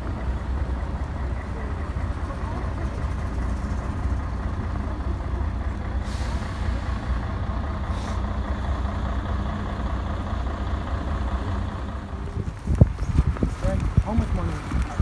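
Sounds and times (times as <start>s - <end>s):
heavy vehicle engine rumble: 0.0s - 15.0s
air brake hiss: 6.0s - 7.2s, 7.9s - 8.3s.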